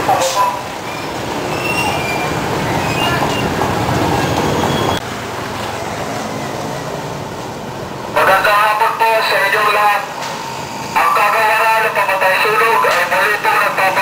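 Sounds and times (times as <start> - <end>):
road noise: 0.0 - 14.0.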